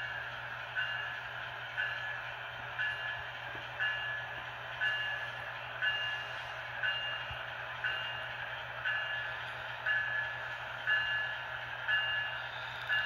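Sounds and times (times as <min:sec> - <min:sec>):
model train hiss: 0:12.4 - 0:13.0.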